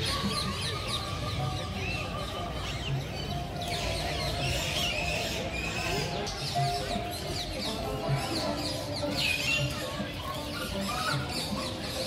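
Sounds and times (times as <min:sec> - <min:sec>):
background music with slow beat: 0:00.0 - 0:12.0
small birds chirping: 0:00.0 - 0:12.0.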